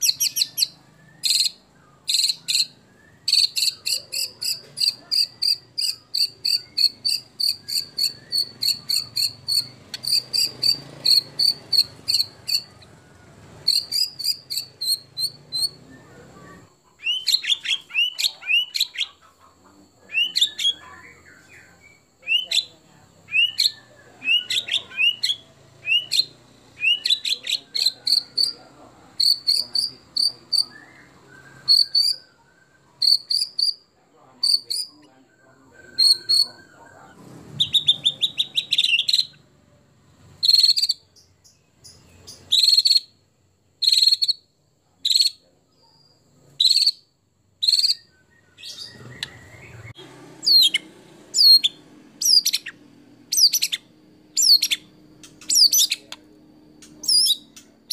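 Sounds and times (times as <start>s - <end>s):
bird singing sweeping whistles: 0.0s - 12.8s, 13.6s - 16.4s, 20.1s - 20.8s, 23.3s - 28.6s, 29.2s - 33.8s, 34.4s - 39.4s, 40.4s - 41.0s, 42.4s - 43.1s, 43.8s - 44.4s, 46.0s - 56.2s, 56.9s - 57.9s.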